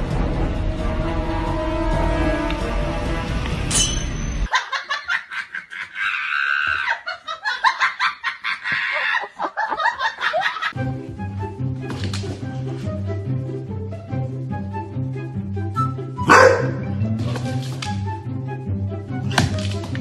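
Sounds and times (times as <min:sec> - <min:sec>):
background music: 0:00.0 - 0:04.5, 0:10.7 - 0:20.0
rapid high-pitched laughter: 0:04.5 - 0:10.8.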